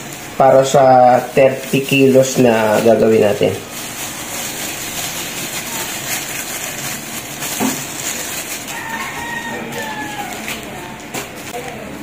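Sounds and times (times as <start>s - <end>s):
sugar pouring into plastic basin: 0.0s - 9.5s.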